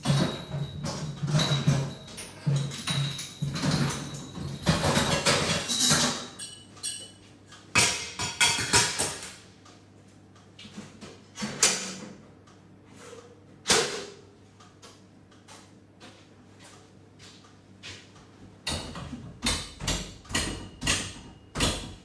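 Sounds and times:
equipment knocks and clanks: 0:00.0 - 0:07.2, 0:18.6 - 0:22.0.

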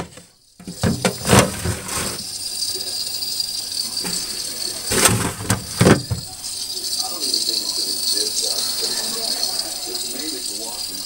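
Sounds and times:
plastic containers rattling: 0:00.0 - 0:02.3, 0:04.0 - 0:06.6.

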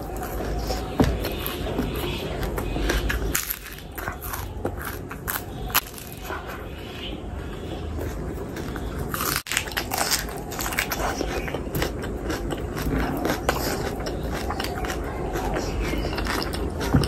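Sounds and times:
chewing with wet mouth clicks: 0:07.4 - 0:17.0.

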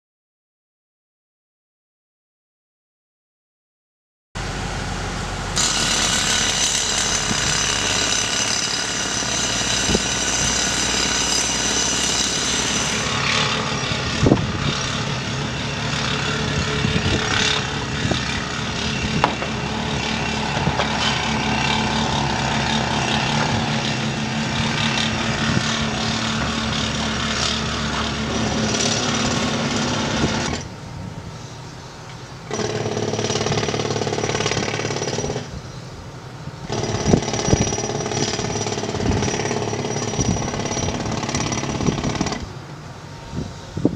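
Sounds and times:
pneumatic jackhammers clattering: 0:05.6 - 0:30.7, 0:32.4 - 0:35.6, 0:36.7 - 0:42.5.

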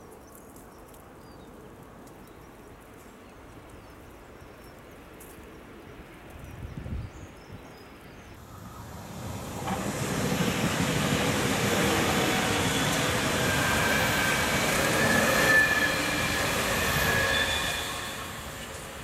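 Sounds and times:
train wheels rumbling on rail: 0:08.4 - 0:19.0
wheels squealing on track: 0:11.8 - 0:18.9.

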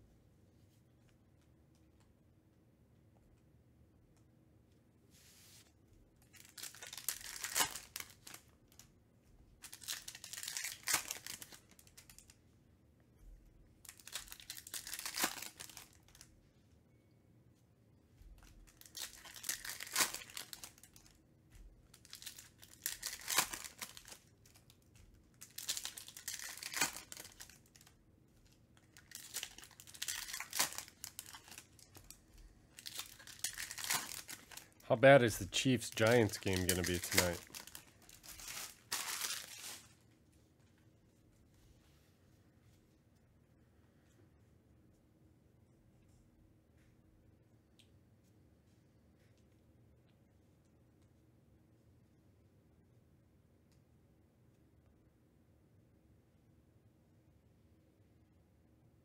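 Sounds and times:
card pack wrappers crinkling: 0:06.2 - 0:08.8, 0:09.6 - 0:12.3, 0:13.8 - 0:16.3, 0:18.4 - 0:21.1, 0:21.9 - 0:27.9, 0:28.8 - 0:40.0.

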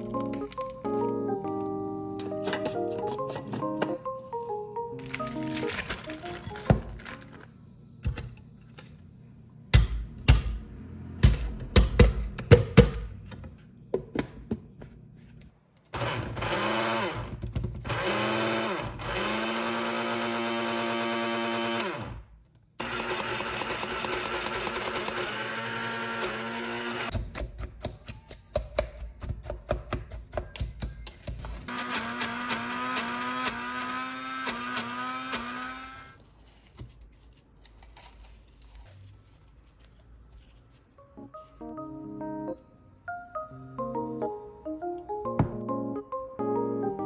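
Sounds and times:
hard items clattering: 0:02.2 - 0:08.4
kitchen appliance motor running: 0:16.0 - 0:22.2, 0:22.8 - 0:27.1, 0:31.7 - 0:36.2.

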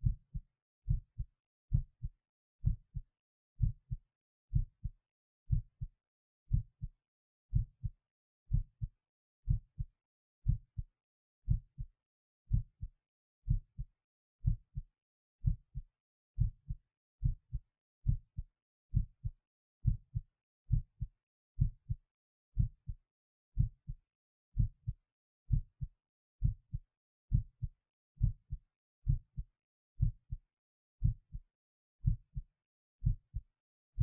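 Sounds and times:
heartbeat: 0:00.0 - 0:03.0, 0:03.6 - 0:04.9, 0:05.5 - 0:05.9, 0:06.5 - 0:06.9, 0:07.5 - 0:07.9, 0:08.5 - 0:08.9, 0:09.5 - 0:10.9, 0:11.5 - 0:11.9, 0:12.5 - 0:12.9, 0:13.5 - 0:14.8, 0:15.4 - 0:15.8, 0:16.4 - 0:22.0, 0:22.6 - 0:23.0, 0:23.6 - 0:30.4, 0:31.0 - 0:31.4, 0:32.0 - 0:32.4, 0:33.0 - 0:33.4.

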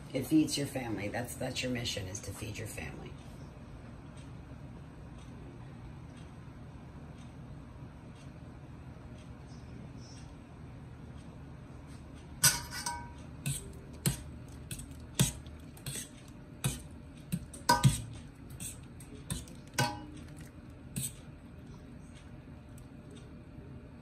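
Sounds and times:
metal server clinking on pot: 0:12.4 - 0:14.2, 0:17.6 - 0:18.1, 0:19.3 - 0:20.4.

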